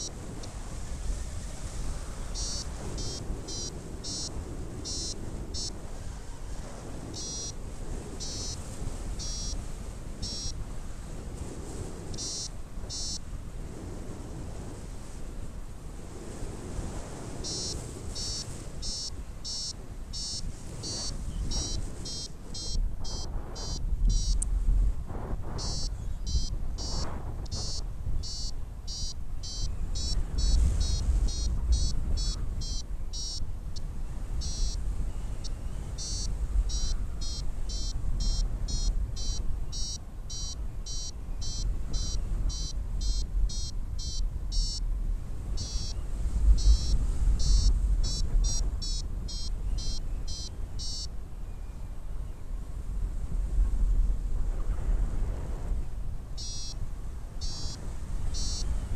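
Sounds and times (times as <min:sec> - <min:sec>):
wind rumble on microphone: 0:00.0 - 0:58.9
short high beeps: 0:02.4 - 0:05.7, 0:07.2 - 0:07.5, 0:08.2 - 0:08.6, 0:09.2 - 0:09.6, 0:10.2 - 0:10.6, 0:12.2 - 0:13.2, 0:17.4 - 0:24.4, 0:25.6 - 0:33.4, 0:34.4 - 0:34.8, 0:36.0 - 0:44.8, 0:45.6 - 0:46.0, 0:46.6 - 0:51.1, 0:56.4 - 0:56.8, 0:57.4 - 0:57.8, 0:58.4 - 0:58.7.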